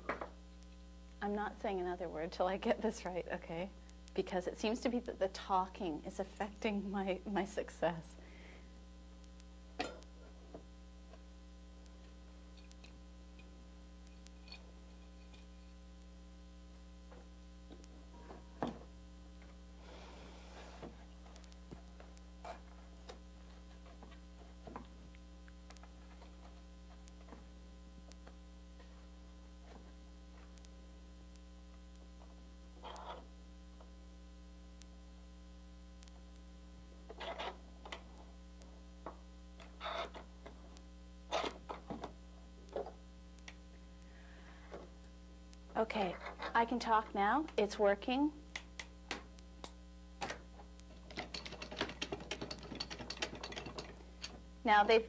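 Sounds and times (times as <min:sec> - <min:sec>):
electrical mains hum: 0:00.0 - 0:55.0
metal clamps clicking and knocking: 0:51.0 - 0:54.4.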